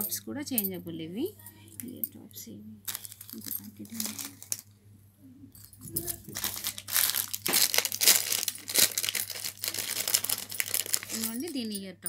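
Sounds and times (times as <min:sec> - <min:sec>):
crinkling handling noise: 0:02.8 - 0:04.8, 0:05.6 - 0:11.6.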